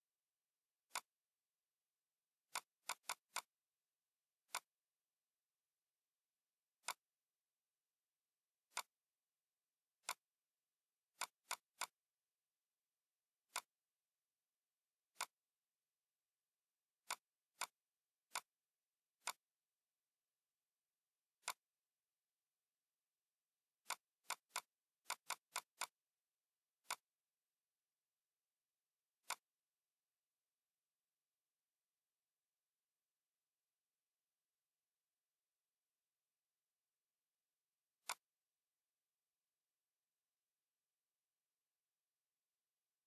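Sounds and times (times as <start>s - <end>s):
computer mouse clicking: 0.9s - 1.2s, 2.5s - 3.6s, 4.4s - 4.8s, 6.8s - 7.1s, 8.7s - 9.0s, 10.0s - 10.3s, 11.1s - 12.0s, 13.4s - 13.8s, 15.1s - 15.4s, 17.0s - 18.6s, 19.2s - 19.6s, 21.4s - 21.7s, 23.8s - 26.0s, 26.8s - 27.2s, 29.2s - 29.6s, 38.0s - 38.3s.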